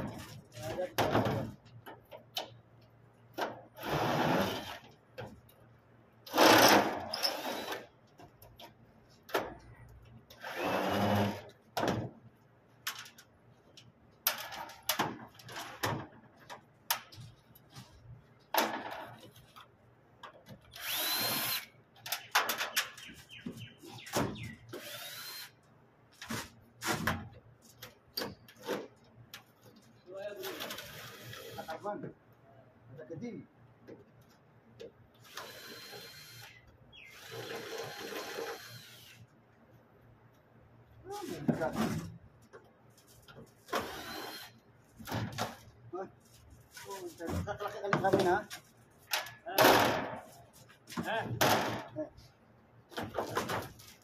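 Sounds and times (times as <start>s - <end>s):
power drill whining: 6.3s - 7.8s, 20.8s - 21.7s, 24.8s - 25.5s, 35.3s - 39.2s, 43.8s - 44.5s.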